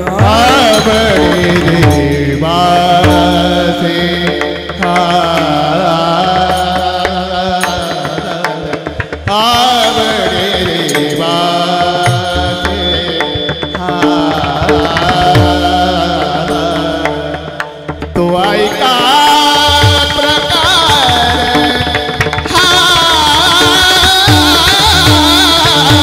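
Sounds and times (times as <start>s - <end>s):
sustained instrumental tones: 0.0s - 6.8s
devotional singing: 0.0s - 26.0s.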